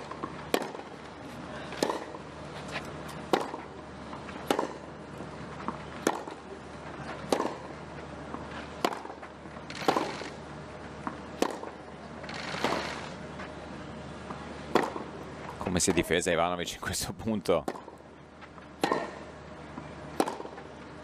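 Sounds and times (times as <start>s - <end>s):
tennis balls hit by rackets: 0.0s - 10.4s, 11.0s - 12.0s, 12.6s - 12.8s, 14.2s - 15.6s, 17.6s - 18.0s, 18.6s - 20.8s.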